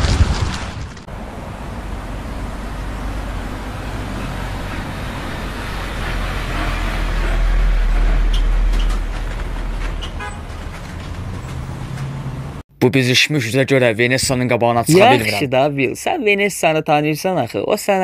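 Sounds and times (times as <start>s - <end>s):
fire engine rumble passing: 0.9s - 12.6s
city street traffic: 1.0s - 13.2s, 14.5s - 18.0s.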